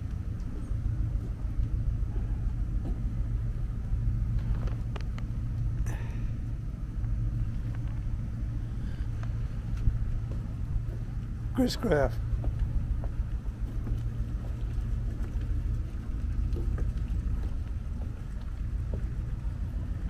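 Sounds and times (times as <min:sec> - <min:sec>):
low rumble: 0:00.0 - 0:20.0
faint clicks and knocks: 0:04.3 - 0:05.8, 0:12.4 - 0:20.0.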